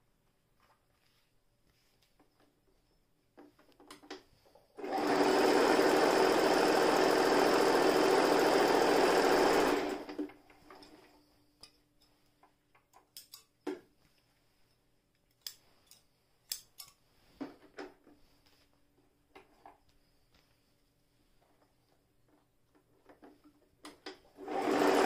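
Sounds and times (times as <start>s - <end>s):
electric sewing machine stitching: 4.8s - 10.3s, 24.3s - 25.0s.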